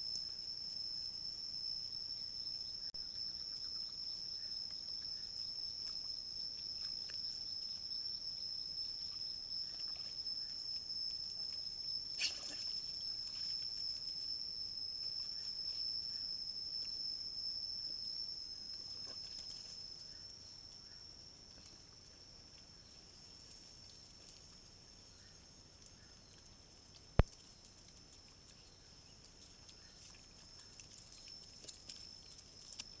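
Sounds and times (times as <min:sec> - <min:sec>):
high-pitched insect drone: 0:00.0 - 0:33.0
wild boar grunting and snuffling: 0:12.2 - 0:12.8.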